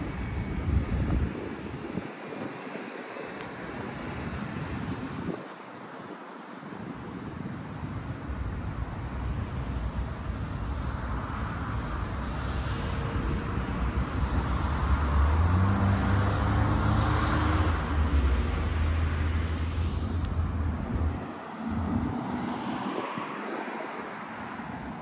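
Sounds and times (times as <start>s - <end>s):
vehicle passing on road: 8.8s - 25.0s.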